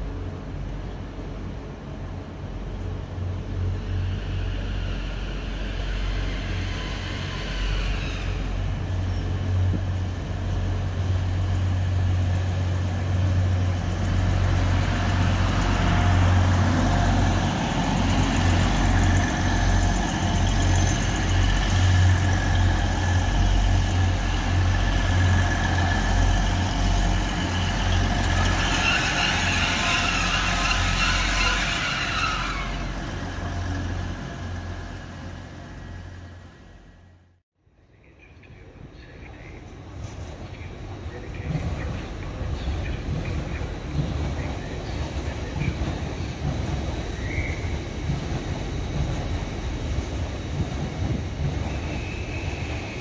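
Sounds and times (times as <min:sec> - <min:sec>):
train diesel engine drone: 0:00.0 - 0:53.0
high squeal: 0:04.0 - 0:09.3, 0:25.1 - 0:33.8, 0:47.1 - 0:47.8, 0:51.7 - 0:53.0.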